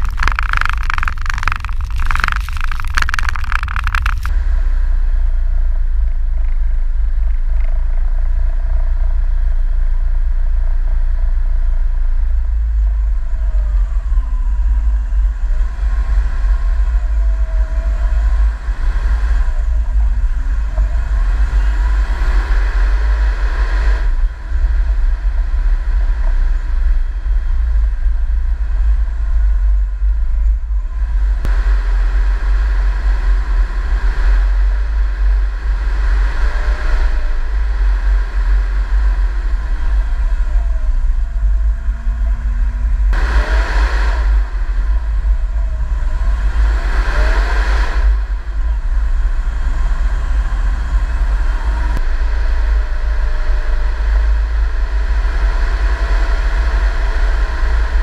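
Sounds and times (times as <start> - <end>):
engine revving: 0.0 - 4.6, 31.1 - 58.0
tracked vehicle rumble: 0.0 - 58.0.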